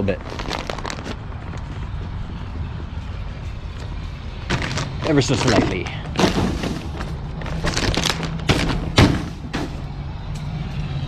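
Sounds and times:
low hum: 0:00.6 - 0:11.0.

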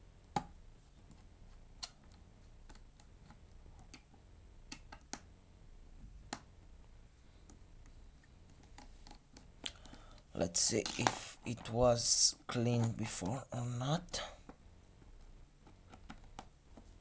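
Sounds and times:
sharp clicks and taps: 0:01.8 - 0:05.3.

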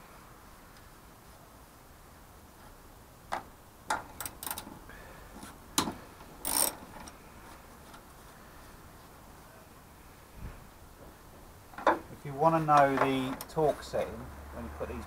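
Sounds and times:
ratchet spanner clicking: 0:04.2 - 0:04.7, 0:05.8 - 0:07.2.

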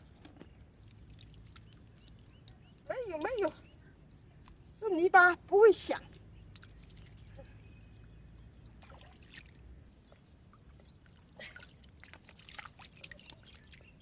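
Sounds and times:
trickling water: 0:00.1 - 0:03.9, 0:05.8 - 0:14.0
wet mud squelching: 0:06.1 - 0:07.7, 0:10.9 - 0:14.0.

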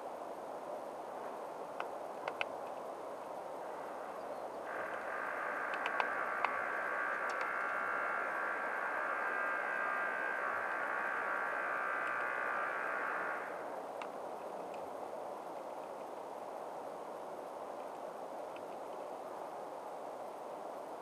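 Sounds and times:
background hiss: 0:00.0 - 0:21.0
woodpecker tapping: 0:01.8 - 0:02.8, 0:04.7 - 0:14.9
high-pitched multi-tone hum: 0:04.6 - 0:13.8.

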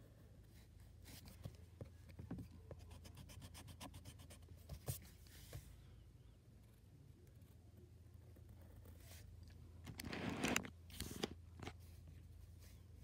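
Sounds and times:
pencil scratching on paper: 0:02.8 - 0:04.5.

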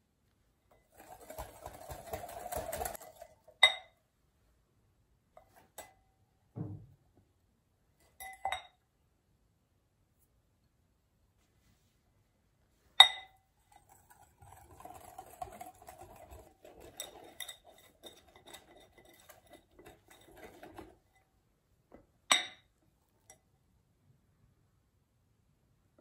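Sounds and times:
whisk stirring batter: 0:00.7 - 0:03.6, 0:13.6 - 0:21.3
clinks on glass bowl: 0:03.6 - 0:04.0, 0:08.2 - 0:08.8, 0:13.0 - 0:15.6, 0:22.3 - 0:22.7.

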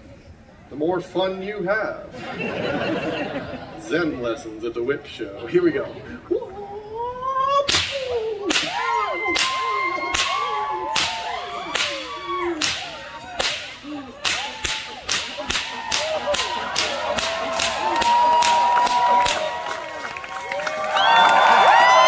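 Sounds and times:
bullwhip cracking: 0:07.7 - 0:19.5.

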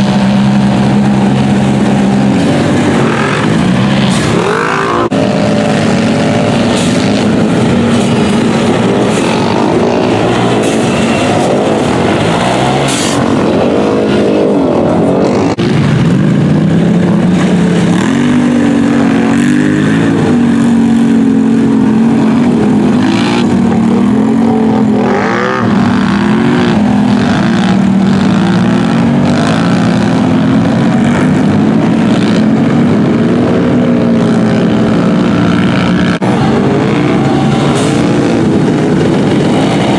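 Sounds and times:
off-road engines revving in mud: 0:00.0 - 0:39.9.

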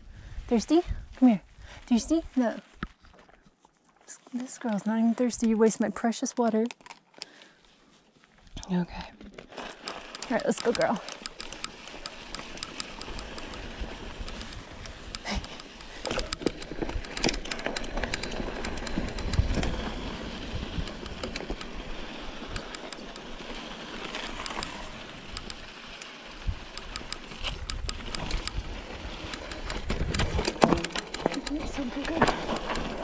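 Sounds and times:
bike tyres crunching over dirt: 0:07.3 - 0:33.0
bike rattling over bumps: 0:09.4 - 0:33.0.

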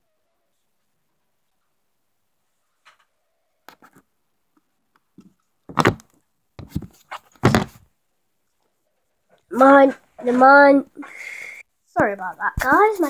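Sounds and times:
knocks and bumps: 0:06.6 - 0:07.9.

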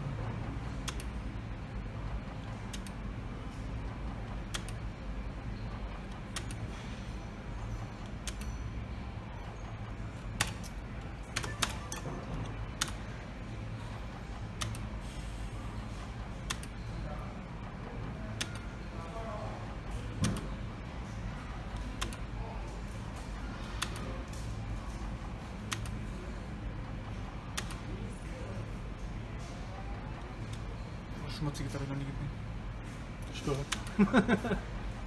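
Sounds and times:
steady low hum: 0:00.0 - 0:35.0
slot machine clicks: 0:10.2 - 0:13.1.

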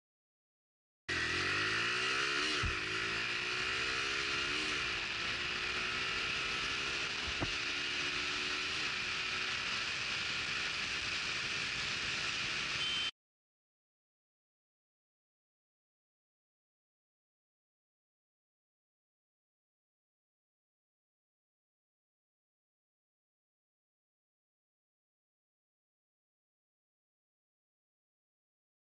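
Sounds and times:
motorcycle engine accelerating: 0:01.1 - 0:13.1
wind and road noise: 0:01.1 - 0:13.1.

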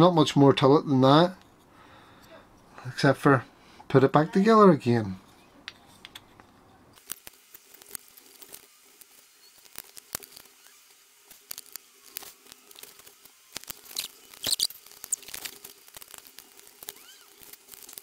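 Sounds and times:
small parts clicking and scraping: 0:05.2 - 0:18.0.

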